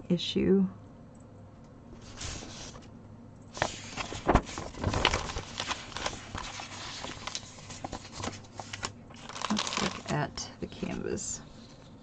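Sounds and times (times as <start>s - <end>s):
packaging rustling and crinkling: 3.6s - 10.2s.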